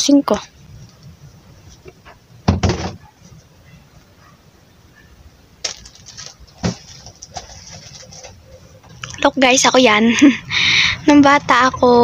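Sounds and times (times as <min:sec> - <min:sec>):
items scraping on plastic shelf: 0:05.7 - 0:09.0.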